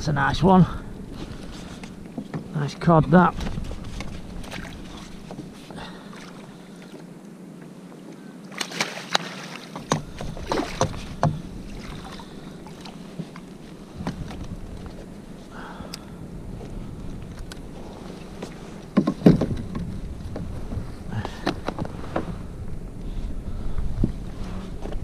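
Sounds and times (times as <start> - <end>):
water splashes: 1.4 - 7.0, 7.9 - 19.9
water washing: 8.5 - 20.4
sharp knocks: 18.9 - 19.9.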